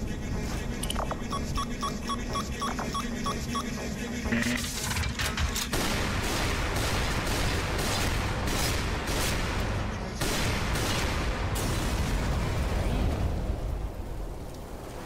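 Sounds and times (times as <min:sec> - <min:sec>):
rapid gunfire: 0:05.4 - 0:12.6
explosions: 0:05.7 - 0:15.0.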